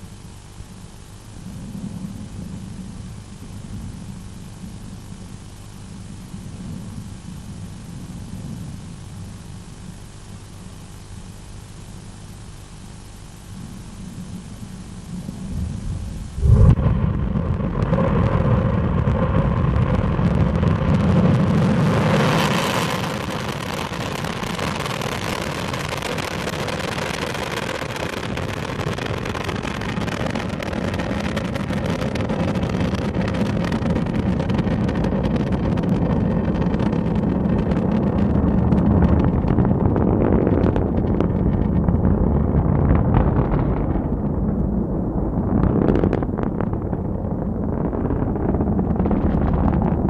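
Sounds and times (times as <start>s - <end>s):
rocket engines roaring: 14.2s - 50.0s.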